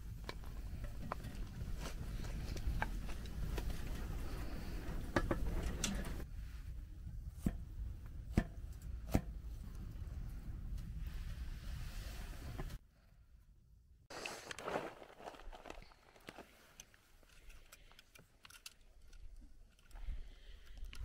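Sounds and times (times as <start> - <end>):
crust crunching: 14.1 - 17.0.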